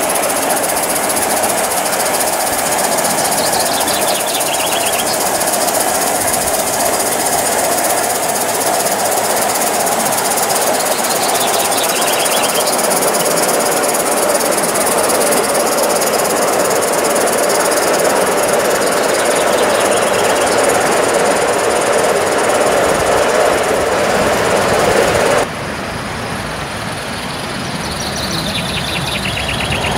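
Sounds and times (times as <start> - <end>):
steam locomotive chuffing: 0.0 - 25.5, 28.2 - 29.9.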